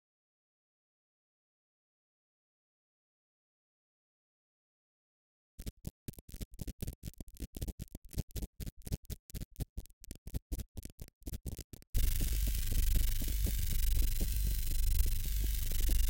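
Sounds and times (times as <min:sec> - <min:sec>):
dense throbbing texture: 0:12.0 - 0:16.0.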